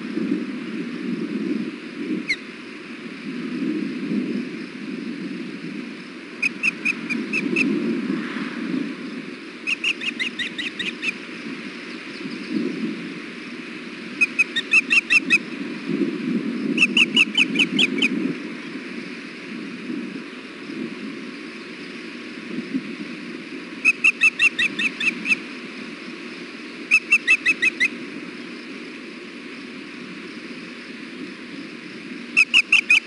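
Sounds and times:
osprey chirping: 0:06.4 - 0:07.7, 0:09.6 - 0:12.6, 0:14.2 - 0:15.5, 0:16.8 - 0:18.1, 0:23.8 - 0:25.4, 0:26.8 - 0:28.0, 0:32.4 - 0:33.0.

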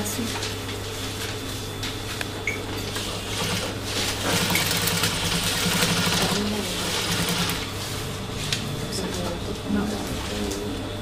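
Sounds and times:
sewing machine motor hum: 0:03.3 - 0:07.8
sewing machine needle whirring: 0:04.3 - 0:07.7.

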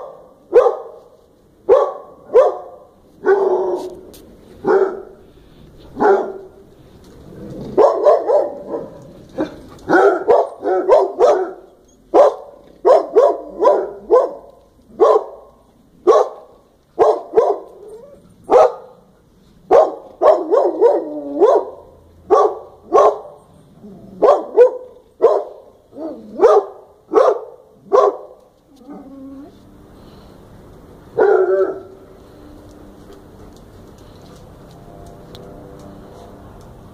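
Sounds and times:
dog barking: 0:00.0 - 0:01.1, 0:01.7 - 0:04.0, 0:04.6 - 0:05.2, 0:06.0 - 0:06.6, 0:07.8 - 0:17.8, 0:18.5 - 0:19.1, 0:19.7 - 0:23.4, 0:24.2 - 0:28.4, 0:31.2 - 0:32.0.

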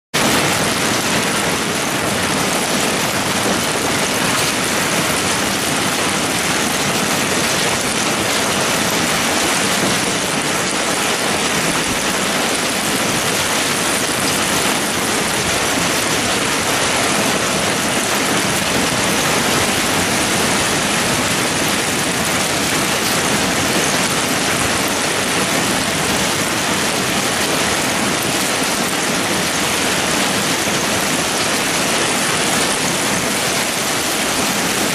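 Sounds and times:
heavy rain and hail: 0:00.2 - 0:34.9.

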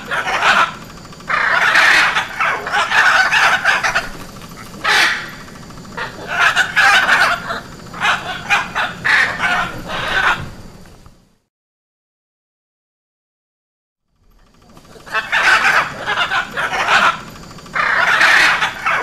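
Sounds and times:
macaws squawking: 0:00.0 - 0:10.7, 0:14.4 - 0:19.0.

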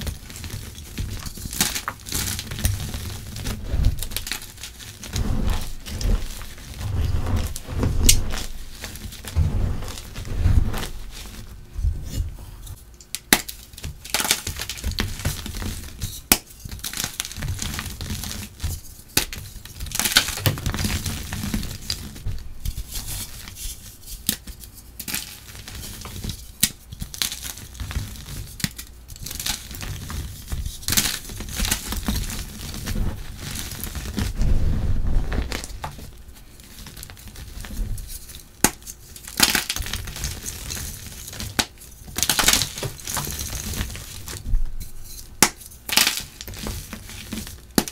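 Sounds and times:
powdery crumbling: 0:00.0 - 0:23.6, 0:25.2 - 0:47.9
chalk blocks snapping and crunching: 0:12.6 - 0:22.0, 0:36.8 - 0:44.4, 0:45.1 - 0:47.9.

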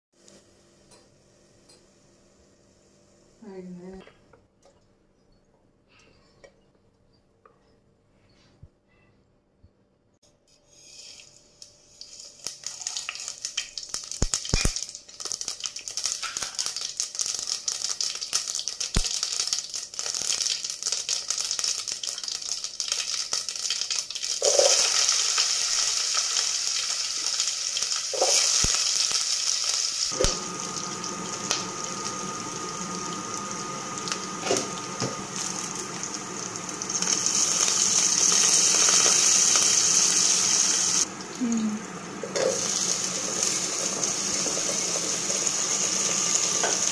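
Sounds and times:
leaves sizzling in oil: 0:10.7 - 0:46.9
onions sizzling in oil: 0:10.7 - 0:46.9
seeds popping in hot oil: 0:11.1 - 0:26.2, 0:27.2 - 0:41.1.

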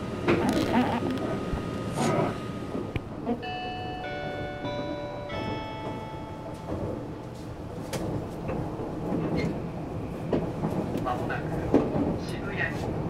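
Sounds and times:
train running rumble: 0:00.0 - 0:13.0.

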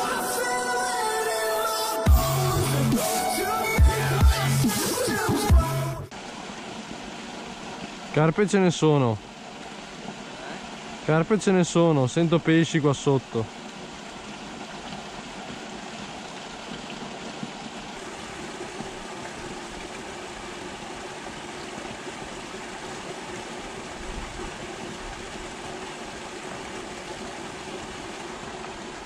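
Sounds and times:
water rushing into a ditch: 0:06.1 - 0:29.0.

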